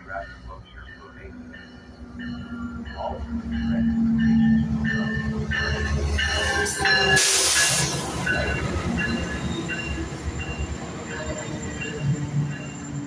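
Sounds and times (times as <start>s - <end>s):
train engine drone: 0.0s - 13.0s
air hiss: 7.2s - 8.0s.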